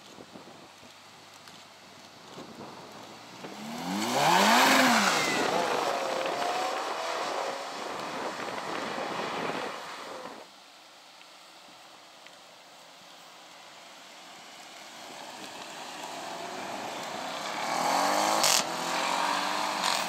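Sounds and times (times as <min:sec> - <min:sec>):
car engine revving: 0:03.4 - 0:10.4, 0:16.0 - 0:20.0.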